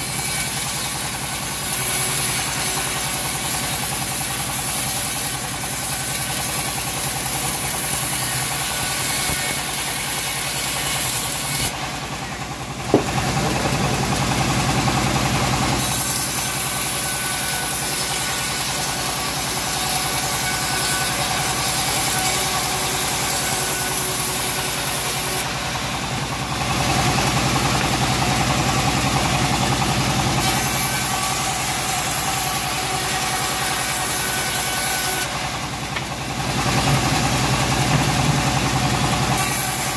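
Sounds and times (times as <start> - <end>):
bandsaw mill running: 0.0 - 39.9
sharp knock: 12.9 - 13.4
saw blade hissing through wood: 15.7 - 25.8.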